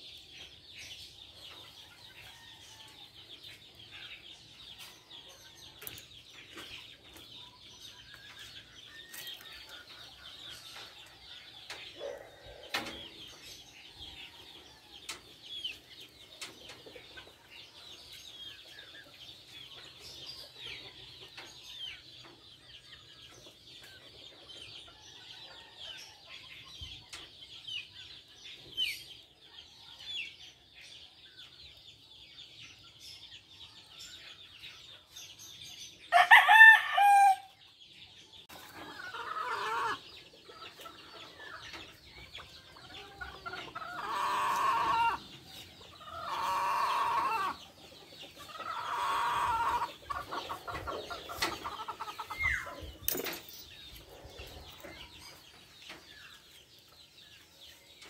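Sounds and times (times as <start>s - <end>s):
chickens calling: 0.0s - 58.0s
rooster crowing: 36.1s - 37.5s.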